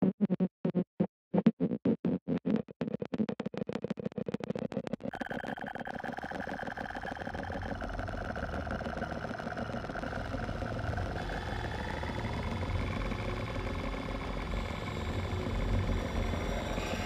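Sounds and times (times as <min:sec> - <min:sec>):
synthesized electronic drone: 0:05.2 - 0:17.0
low buzzing rumble: 0:06.4 - 0:17.0.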